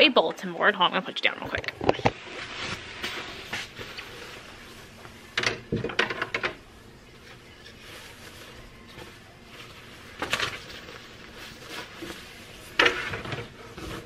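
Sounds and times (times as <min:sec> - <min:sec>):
puffer jacket rustling: 0:07.8 - 0:12.8.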